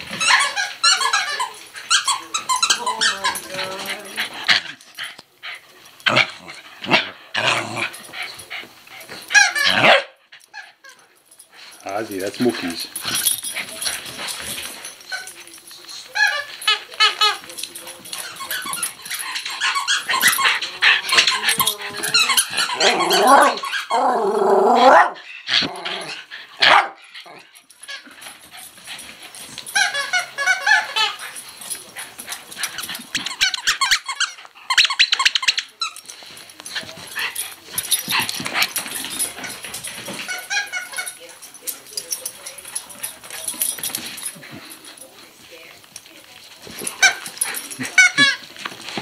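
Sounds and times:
squeak toy squeaking: 0.2 - 3.7, 9.3 - 9.8, 16.2 - 17.4, 18.2 - 21.4, 29.7 - 31.2, 33.1 - 36.0, 40.2 - 41.2, 47.9 - 48.4
dogs growling: 2.5 - 8.8, 18.1 - 29.4
dogs barking: 9.7 - 10.2, 26.6 - 27.3.

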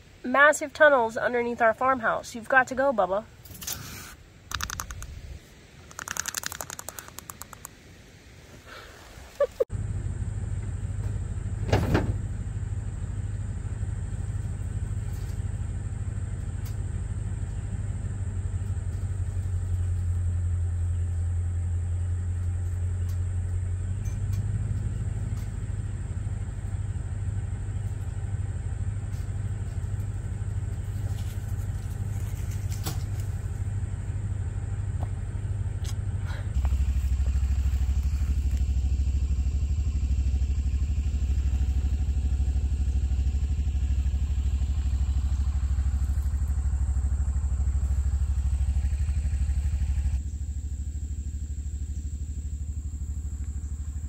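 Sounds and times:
vehicle engine running: 4.3 - 7.8, 9.6 - 54.0.

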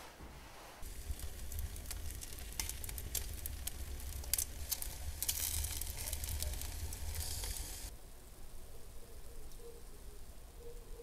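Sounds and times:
low steady rumble: 0.4 - 7.9
food sizzling: 0.8 - 7.9.

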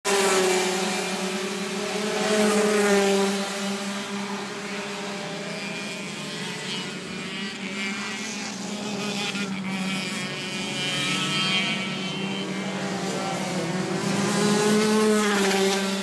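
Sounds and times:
racing karts passing: 0.0 - 16.0.

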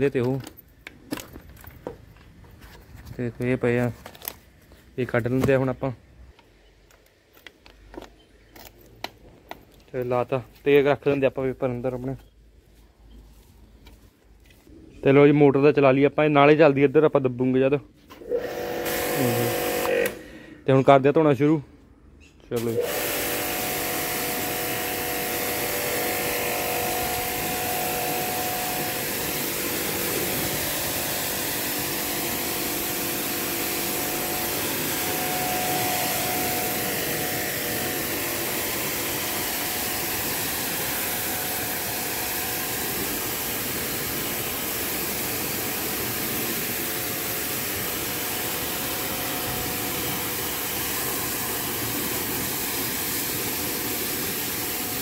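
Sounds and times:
pressure washer jet hissing: 18.2 - 20.3, 22.6 - 55.0
faint pump motor hum: 22.6 - 55.0.

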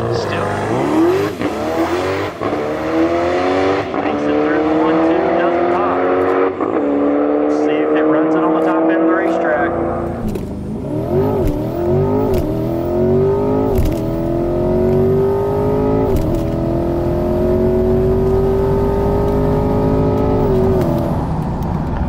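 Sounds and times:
car engine at full throttle: 0.0 - 22.0
gear shift sharp sound: 10.0 - 12.7, 13.6 - 14.2, 16.0 - 16.6, 19.2 - 21.5.

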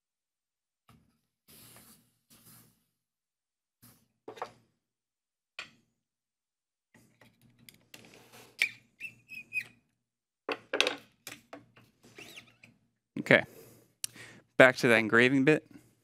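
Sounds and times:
short high squeak: 8.6 - 9.8, 12.2 - 12.6.

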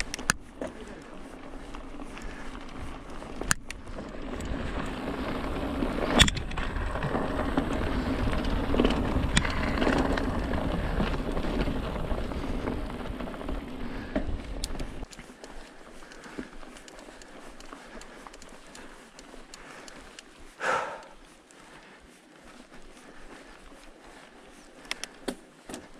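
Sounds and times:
bike frame rattling: 0.0 - 20.8
bike tyres rumbling on dirt: 0.0 - 25.9.

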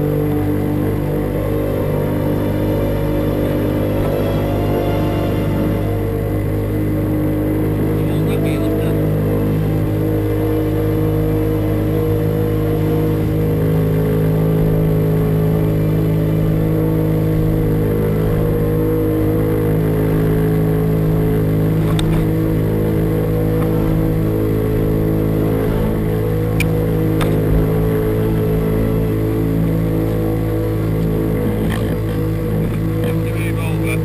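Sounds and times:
boat engine droning: 0.0 - 34.0
rush of the wake: 17.4 - 34.0.

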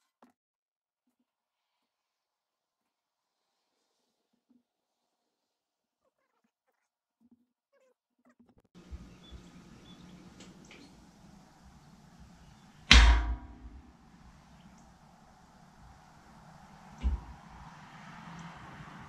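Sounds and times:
loud heavy knock: 12.8 - 13.9, 17.0 - 17.6.

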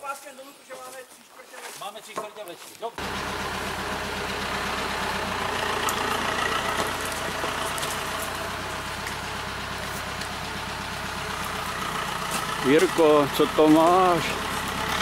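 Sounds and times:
tractor engine running: 3.0 - 15.0.

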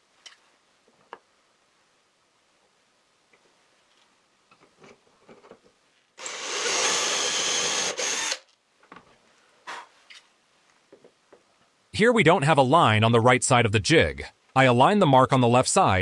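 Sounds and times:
cordless drill boring: 6.2 - 8.5.

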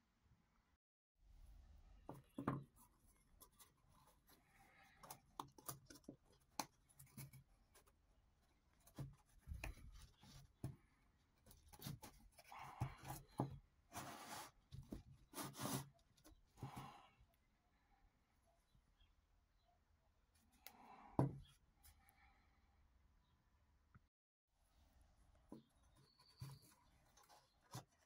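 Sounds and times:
cardboard cores scraping: 11.4 - 16.6.

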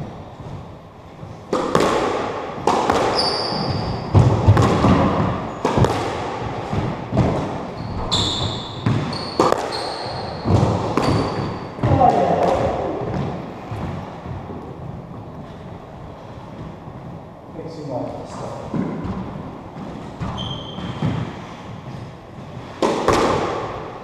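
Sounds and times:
squash ball and racket impacts: 0.0 - 24.0
shoes squeaking on wooden floor: 3.0 - 4.6, 7.4 - 13.8, 18.8 - 22.8.

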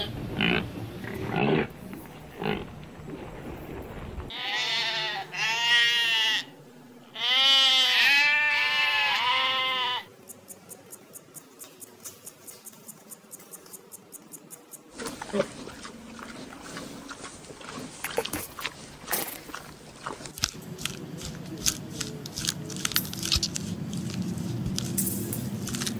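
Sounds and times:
sheep bleating: 4.3 - 10.1
insect chirping ticks: 10.1 - 15.0.

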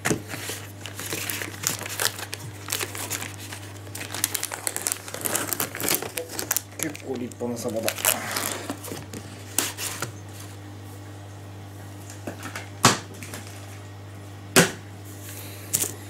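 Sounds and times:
steady low hum: 0.0 - 16.0
plastic film crinkling: 0.2 - 10.1, 15.7 - 16.0.

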